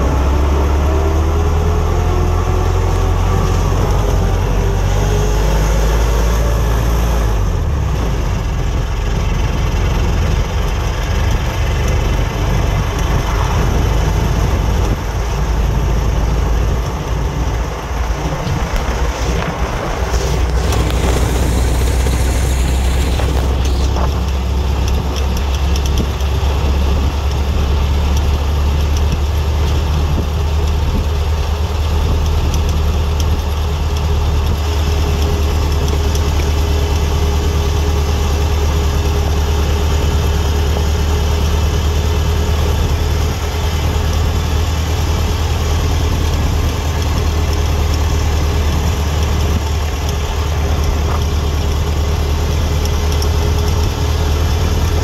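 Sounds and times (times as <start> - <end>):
car engine deep drone: 0.0 - 55.0
road noise: 0.0 - 55.0
wind noise: 0.0 - 55.0.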